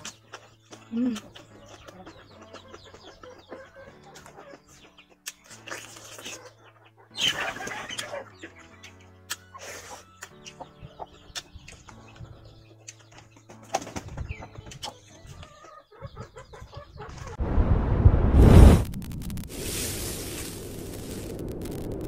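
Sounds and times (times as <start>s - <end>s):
low background music: 0.0s - 16.6s
mouth clicks while chewing: 5.2s - 6.4s, 9.3s - 10.6s
whoosh and rumble sound effect: 17.4s - 22.0s.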